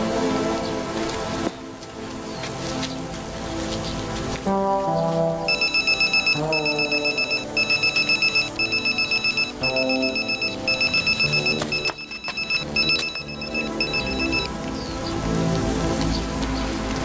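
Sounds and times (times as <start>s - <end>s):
pager beeping: 5.5s - 14.5s.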